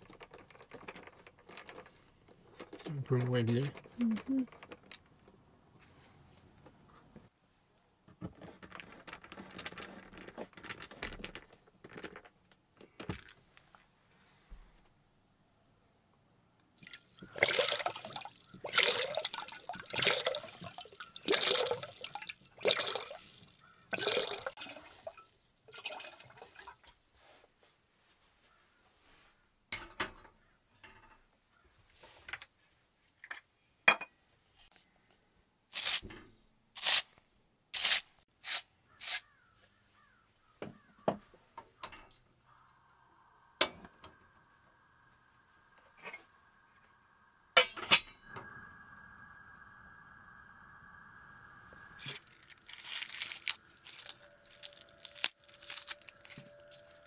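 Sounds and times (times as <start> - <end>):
water splashing: 16.8 - 26.8
faint steady tone: 41.8 - 52.7.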